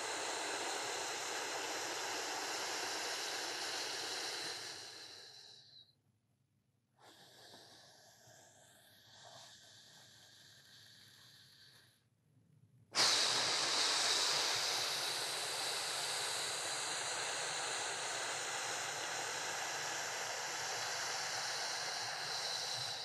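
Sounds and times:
man exhaling with a hiss: 0.0 - 5.8, 13.0 - 23.0.

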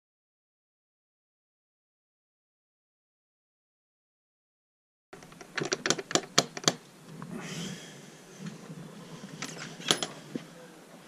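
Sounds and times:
sharp clicks: 5.2 - 6.9.

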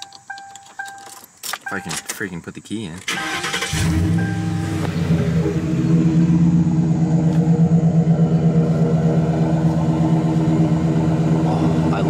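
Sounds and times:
car engine idling: 3.1 - 12.0.

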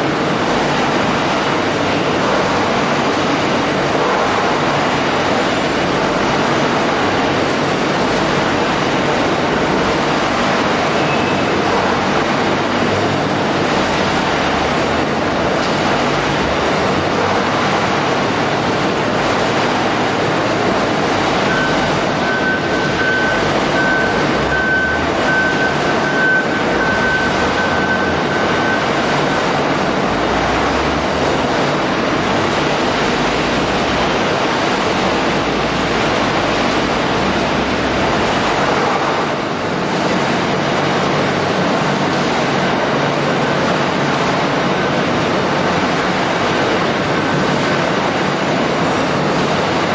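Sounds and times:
shredding machinery noise: 0.0 - 49.9
high beep: 21.4 - 29.4.

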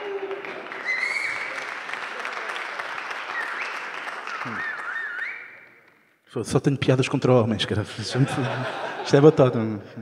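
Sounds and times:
audience applauding: 0.0 - 6.0
whistles: 0.8 - 1.8, 3.1 - 5.8.

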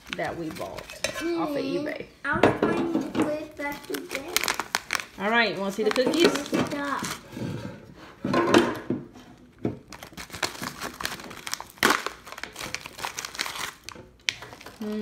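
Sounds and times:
plastic wrapper crinkling: 0.0 - 1.1, 3.3 - 7.3, 9.8 - 15.0.

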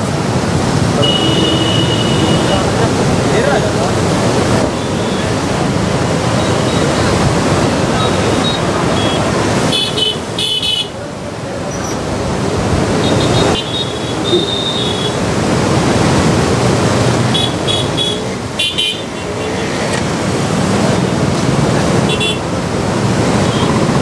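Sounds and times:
road traffic: 0.0 - 24.0
vehicle horn toots: 1.0 - 2.7, 8.4 - 10.9.

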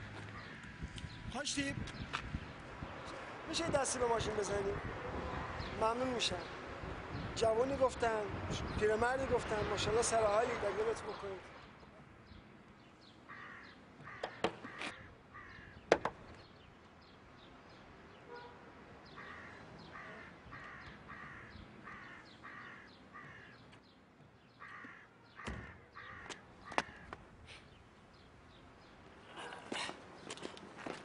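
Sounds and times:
crows cawing: 0.2 - 0.8, 13.2 - 16.0, 18.3 - 23.8, 24.5 - 27.2.

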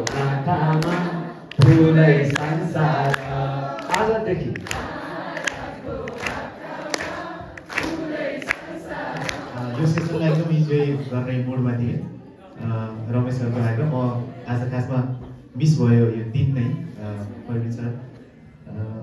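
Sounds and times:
group of voices singing: 0.0 - 11.2.

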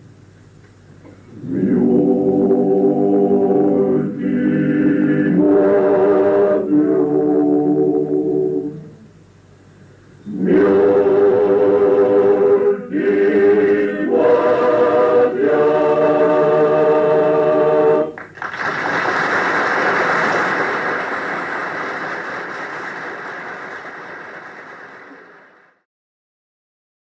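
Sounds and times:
male choir singing a cappella: 1.3 - 9.0, 10.2 - 18.2
audience applause: 18.2 - 25.8.

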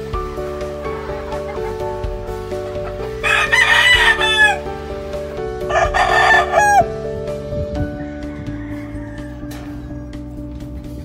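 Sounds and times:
background music: 0.0 - 11.0
rooster crowing: 3.2 - 4.7, 5.6 - 7.0, 7.9 - 10.4.

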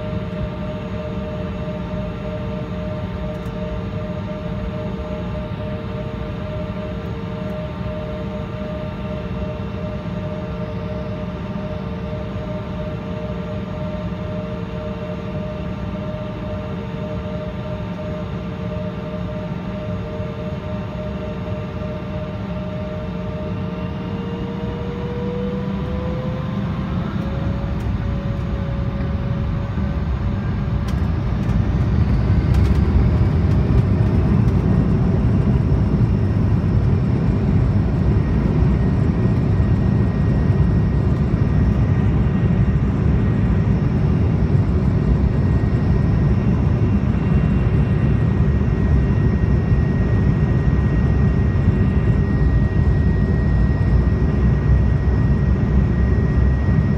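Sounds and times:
jet engines spooling up in cabin: 0.0 - 56.9.

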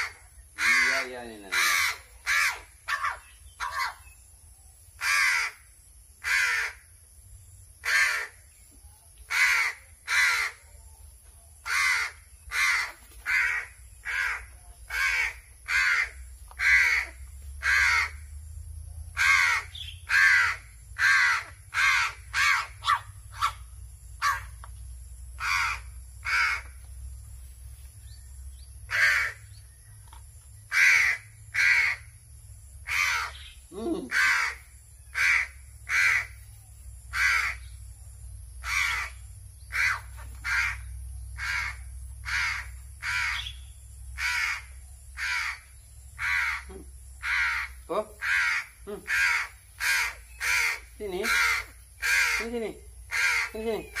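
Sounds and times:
crow cawing: 0.0 - 4.0, 5.0 - 6.9, 7.8 - 8.5, 9.3 - 10.6, 11.6 - 18.3, 19.2 - 23.6, 24.2 - 24.6, 25.4 - 26.8, 28.9 - 29.5, 30.7 - 32.1, 32.8 - 33.5, 34.1 - 36.4, 37.1 - 37.7, 38.6 - 43.6, 44.2 - 54.0.

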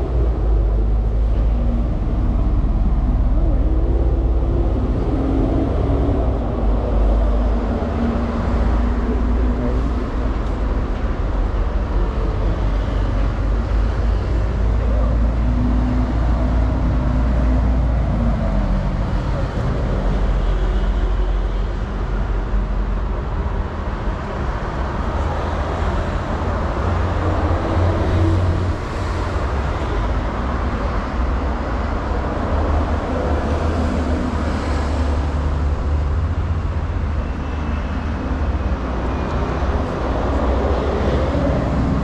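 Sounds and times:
deep low rumble: 0.0 - 20.6
road traffic running past: 0.0 - 42.0.

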